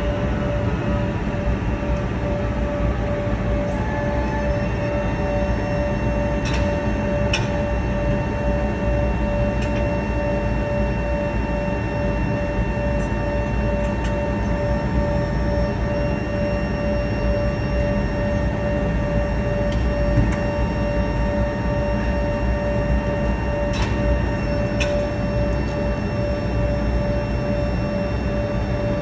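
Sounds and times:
jet engines idling: 0:00.0 - 0:29.0.

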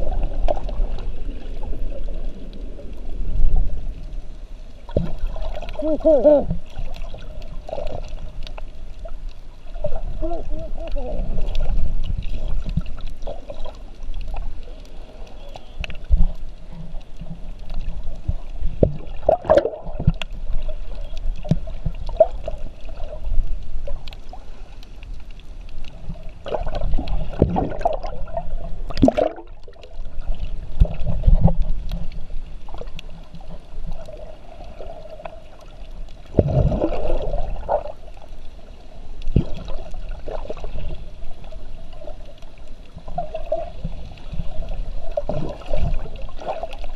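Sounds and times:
underwater seawater sloshing: 0:00.0 - 0:46.9
underwater clicks: 0:10.9 - 0:38.2.

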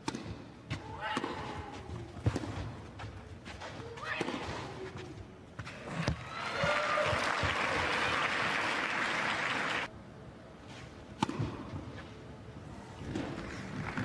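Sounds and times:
tennis racket hitting ball: 0:00.0 - 0:01.6
crowd applauding: 0:06.3 - 0:09.9.

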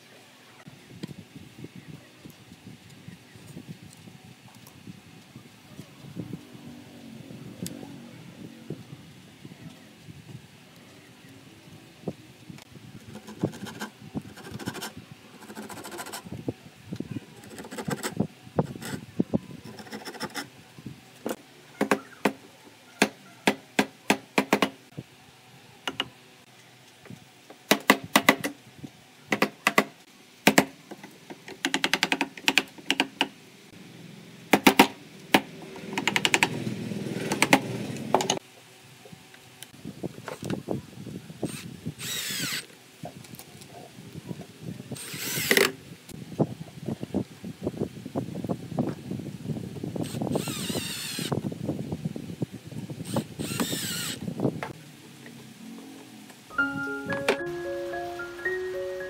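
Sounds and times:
handsaw cutting wood: 0:13.2 - 0:16.3, 0:17.4 - 0:19.0, 0:19.7 - 0:20.5
cordless drill driving screw: 0:41.5 - 0:42.7, 0:45.0 - 0:45.7, 0:50.0 - 0:51.4, 0:53.0 - 0:54.2.

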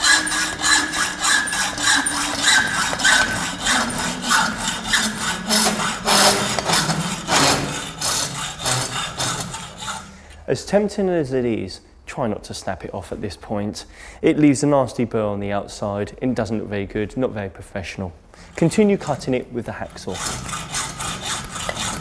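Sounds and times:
hacksaw cutting steel conduit: 0:00.0 - 0:10.2, 0:18.5 - 0:22.0.

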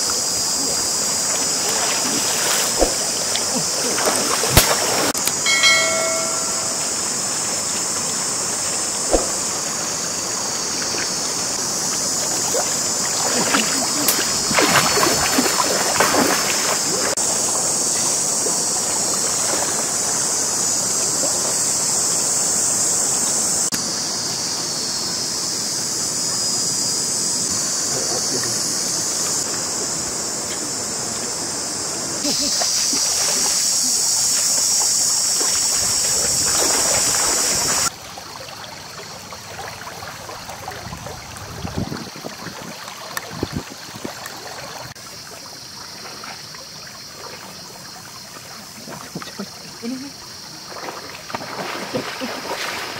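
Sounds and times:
steady high hiss: 0:00.0 - 0:15.6
water splashing: 0:00.0 - 0:20.4, 0:32.2 - 0:52.9
river water flowing: 0:00.0 - 0:26.1, 0:27.4 - 0:52.9.

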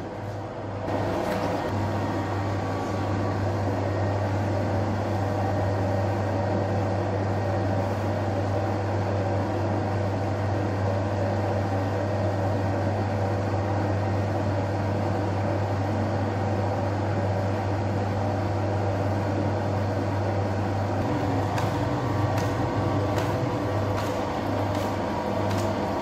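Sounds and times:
dough mixer humming: 0:00.0 - 0:26.0.

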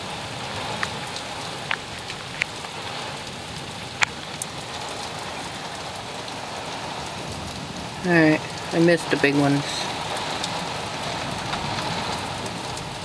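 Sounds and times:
heavy rain on a window: 0:00.0 - 0:13.0
raindrops tapping glass: 0:08.0 - 0:13.0.

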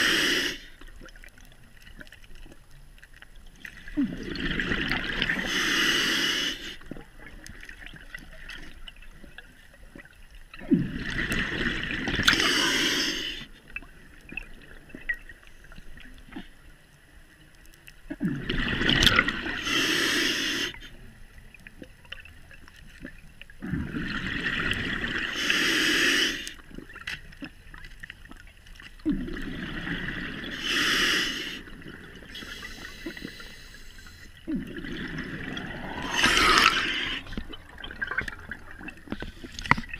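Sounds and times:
regulator exhalation bubbling: 0:34.4 - 0:39.9.

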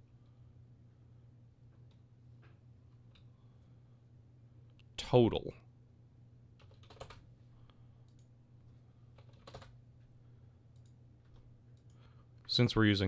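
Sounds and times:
low steady hum: 0:00.0 - 0:13.0
keyboard and mouse clicks: 0:06.6 - 0:07.2.

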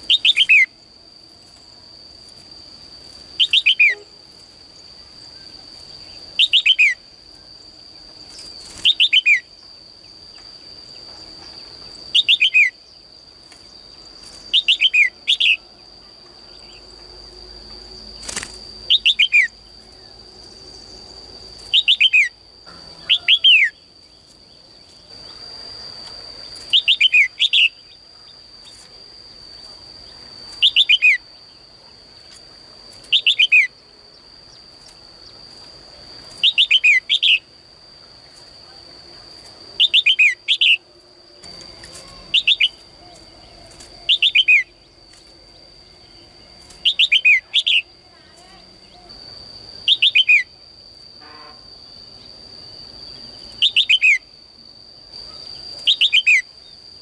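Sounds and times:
bird chirping: 0:00.0 - 0:00.8, 0:03.4 - 0:04.1, 0:05.4 - 0:07.0, 0:08.3 - 0:09.5, 0:11.9 - 0:13.0, 0:13.9 - 0:15.6, 0:18.9 - 0:20.2, 0:21.7 - 0:22.4, 0:26.5 - 0:28.0, 0:42.0 - 0:44.9, 0:46.8 - 0:47.9, 0:53.5 - 0:54.3.

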